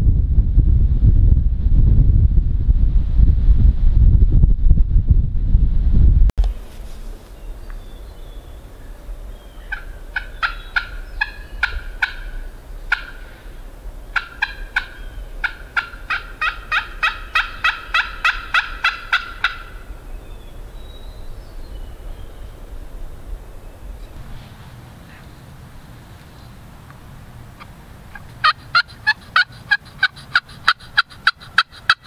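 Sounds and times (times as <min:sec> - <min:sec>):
low wind rumble: 0:00.0 - 0:32.0
turkey yelping: 0:09.6 - 0:13.4, 0:14.1 - 0:19.8, 0:27.6 - 0:32.0.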